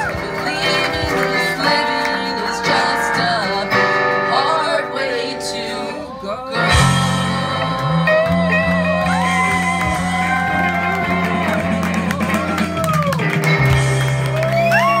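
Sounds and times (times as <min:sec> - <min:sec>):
strummed acoustic guitar: 0:00.0 - 0:12.6
electric guitar lead notes: 0:00.0 - 0:15.0
steady low bass notes: 0:06.5 - 0:15.0.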